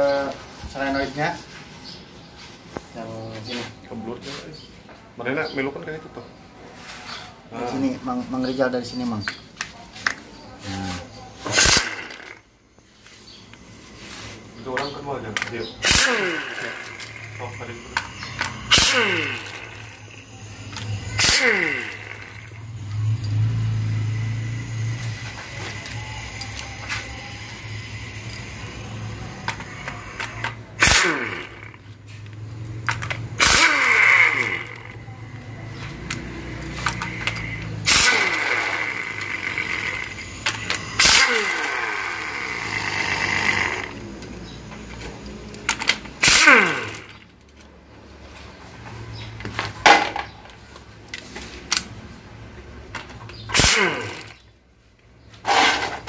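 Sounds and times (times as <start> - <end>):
falling whine: 11.4 - 45.1.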